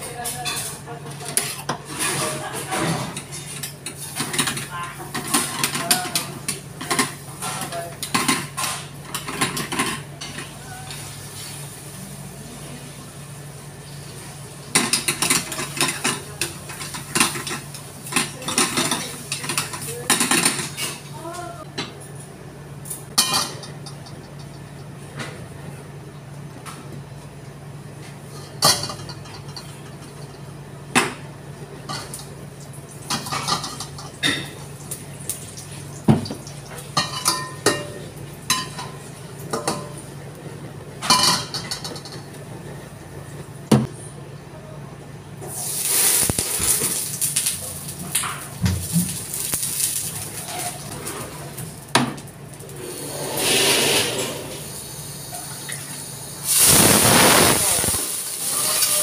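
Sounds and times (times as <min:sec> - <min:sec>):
metal pans and utensils clinking: 0:00.1 - 0:11.6, 0:14.7 - 0:21.3, 0:23.1 - 0:24.6, 0:28.3 - 0:30.4, 0:33.0 - 0:34.7, 0:36.2 - 0:40.0, 0:41.0 - 0:42.3, 0:46.2 - 0:51.6
hot oil sizzling in wok: 0:45.4 - 0:51.0, 0:52.6 - 0:59.0.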